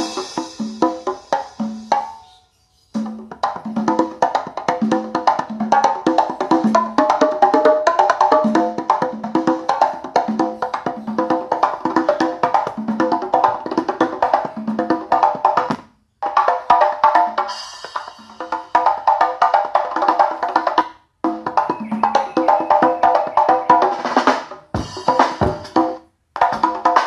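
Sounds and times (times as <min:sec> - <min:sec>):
music with wood-block beat from speaker: 0:00.0 - 0:27.0
speaker crackling: 0:08.4 - 0:16.0, 0:21.2 - 0:25.7.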